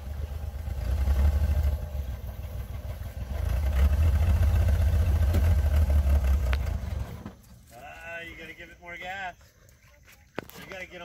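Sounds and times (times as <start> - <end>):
vehicle engine low rumble: 0.0 - 8.8.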